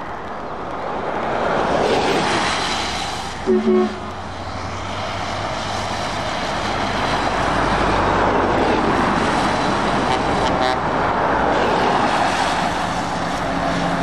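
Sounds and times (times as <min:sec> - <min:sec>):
tyres on wet road: 0:00.0 - 0:14.0
truck diesel engine passing: 0:01.4 - 0:14.0
short horn toots: 0:03.4 - 0:04.1.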